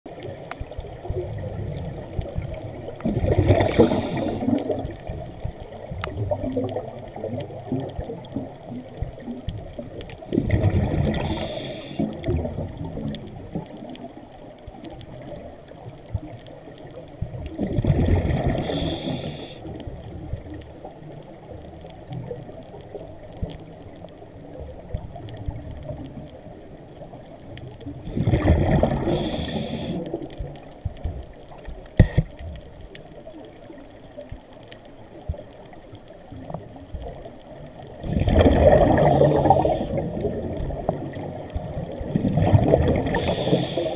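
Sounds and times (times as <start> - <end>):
underwater background: 0.1 - 43.9
regulator bubbling breaths: 3.1 - 4.9, 10.4 - 12.4, 17.8 - 19.6, 28.2 - 30.2, 38.0 - 40.5, 42.1 - 43.9
sharp click: 32.0 - 32.3.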